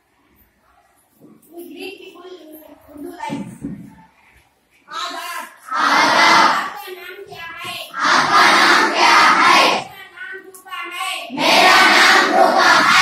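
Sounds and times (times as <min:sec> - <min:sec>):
children chanting in unison: 0:04.9 - 0:06.8, 0:07.9 - 0:10.0, 0:11.3 - 0:13.0.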